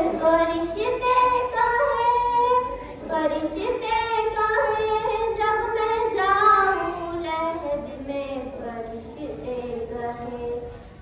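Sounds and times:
girl singing unaccompanied: 0.0s - 11.0s.

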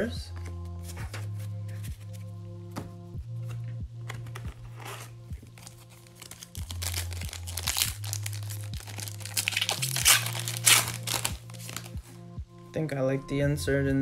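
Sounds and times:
background music with bass line: 0.0s - 14.0s
foil wrapper crinkling and tearing: 5.5s - 12.0s.

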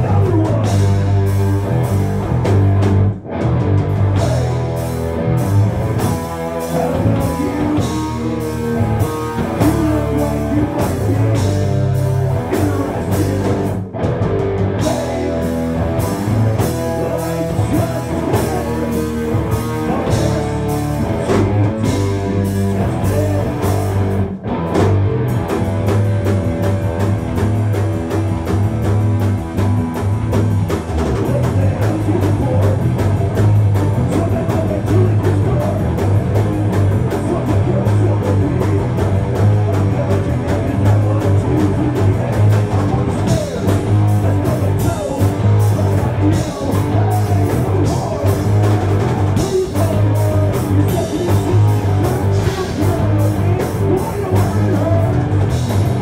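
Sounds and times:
drum kit: 0.0s - 56.0s
electric guitars: 0.0s - 56.0s.

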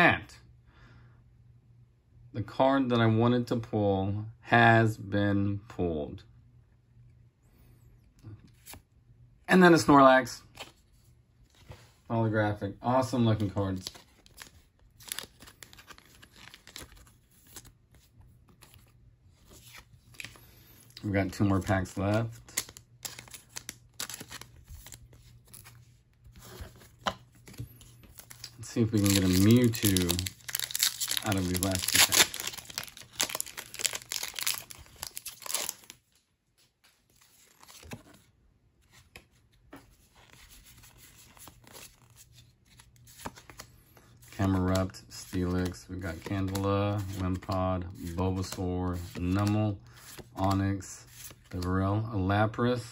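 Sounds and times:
cards being handled: 10.4s - 12.0s, 12.9s - 51.8s
foil wrapper tearing and crinkling: 28.2s - 36.0s.

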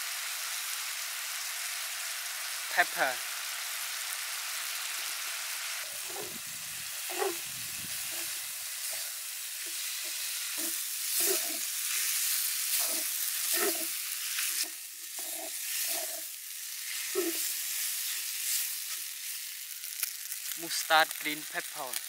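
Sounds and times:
food sizzling in a wok: 0.0s - 22.0s
wooden spatula scraping a pan: 6.0s - 6.4s, 7.0s - 19.4s.

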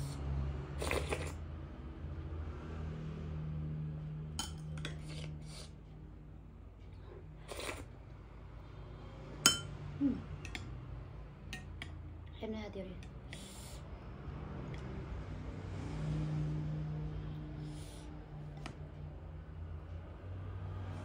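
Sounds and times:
plastic spoon clinking on glass: 4.4s - 5.0s, 9.5s - 9.7s.

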